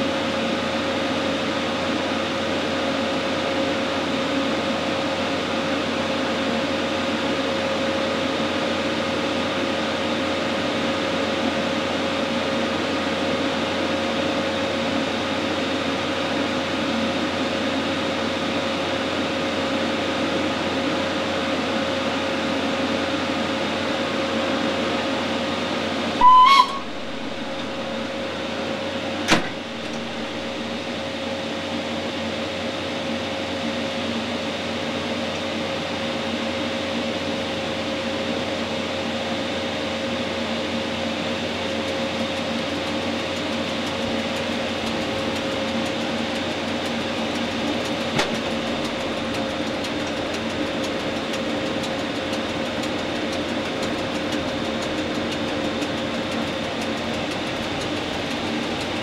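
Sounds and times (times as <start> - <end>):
locomotive equipment humming: 24.4 - 31.6, 42.3 - 59.0
short high whistle: 26.2 - 28.2.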